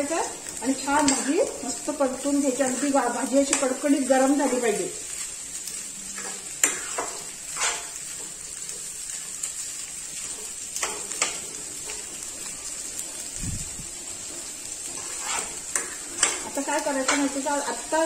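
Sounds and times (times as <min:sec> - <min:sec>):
faint frying sizzle: 0:00.0 - 0:18.0
metal spoon scraping a pan: 0:00.5 - 0:04.8, 0:06.1 - 0:09.6, 0:10.2 - 0:18.0.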